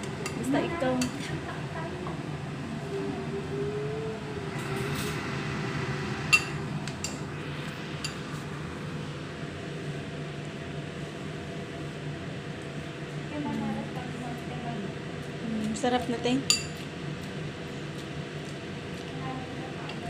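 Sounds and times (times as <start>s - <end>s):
range hood fan humming: 0.0s - 20.0s
utensils clinking against dishes: 16.4s - 16.9s.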